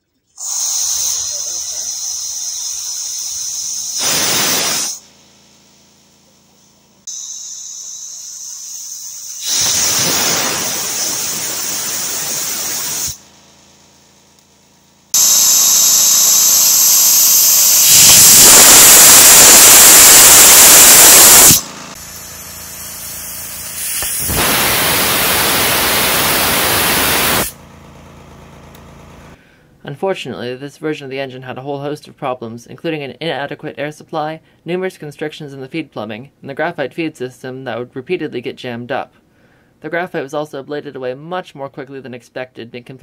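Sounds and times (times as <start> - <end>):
air jet hissing from nozzle: 0.4 - 5.0, 7.1 - 13.2, 15.1 - 27.6.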